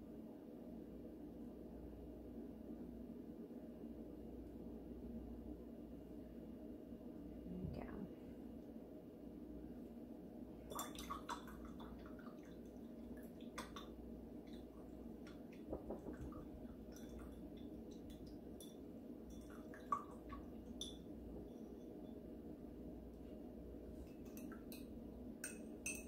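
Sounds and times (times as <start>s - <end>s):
taps against glass jar: 24.2s - 26.0s.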